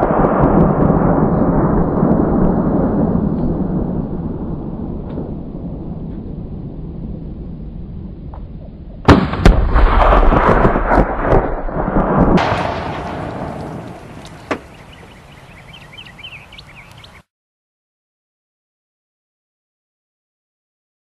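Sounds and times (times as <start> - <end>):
explosion boom: 0.0 - 15.2
rolling rumble: 0.0 - 17.2
gunshots: 9.0 - 14.7.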